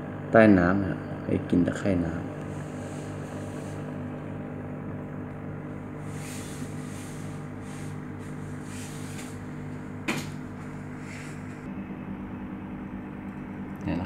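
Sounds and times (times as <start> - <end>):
aquarium pump humming: 0.0 - 14.0.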